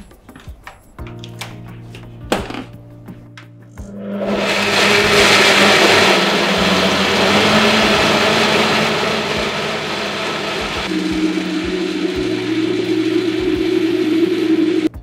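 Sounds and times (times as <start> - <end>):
blender motor whirring: 3.9 - 15.0.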